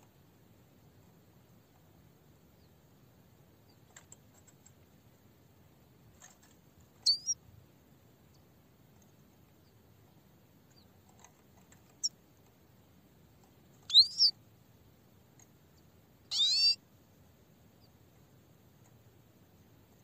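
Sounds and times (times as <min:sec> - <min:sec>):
goldfinch calling: 0:07.0 - 0:07.4, 0:13.9 - 0:14.3, 0:16.3 - 0:16.8.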